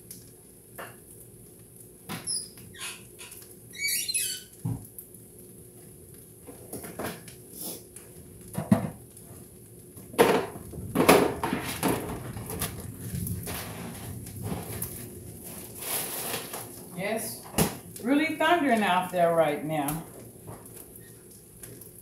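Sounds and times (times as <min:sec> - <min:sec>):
utensil scraping a skillet: 0:15.4 - 0:16.8.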